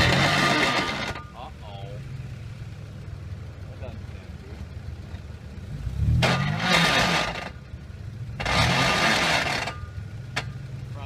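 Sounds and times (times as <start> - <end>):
tyres spinning in loose dirt: 0.0 - 1.4, 6.2 - 7.6, 8.4 - 10.6
engine revving: 0.0 - 2.5, 5.6 - 11.0.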